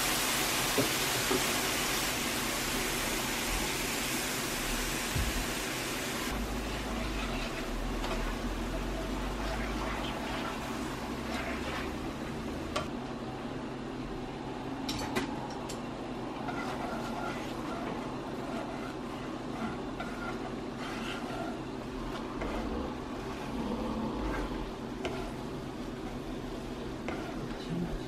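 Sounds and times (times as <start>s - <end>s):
steady background hum: 1.1s - 28.0s
cream sauce bubbling in a pan: 6.3s - 12.8s, 24.7s - 27.6s.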